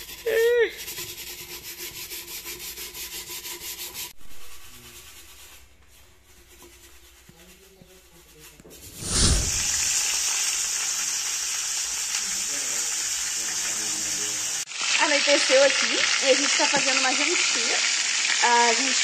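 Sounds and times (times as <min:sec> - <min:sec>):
pan being scrubbed: 0:00.0 - 0:10.2
food sizzling in hot pan: 0:09.0 - 0:19.0.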